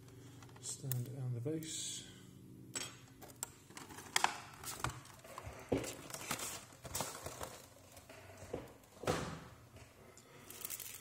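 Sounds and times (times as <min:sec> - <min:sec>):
plastic packaging crinkling: 0:03.7 - 0:08.0, 0:10.4 - 0:11.0.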